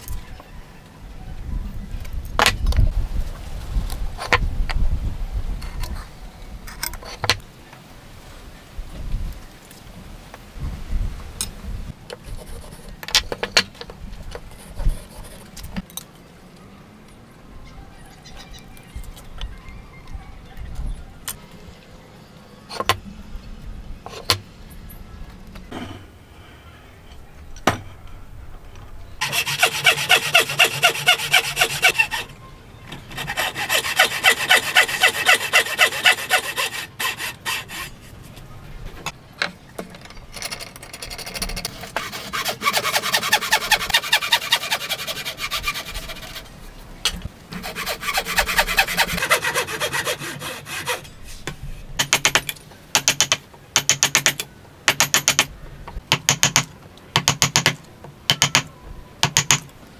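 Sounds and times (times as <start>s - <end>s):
hand saw cutting timber: 29.2s - 32.3s, 33.1s - 38.1s, 41.7s - 46.5s, 47.5s - 51.1s
chisel knocks: 56.1s - 59.7s.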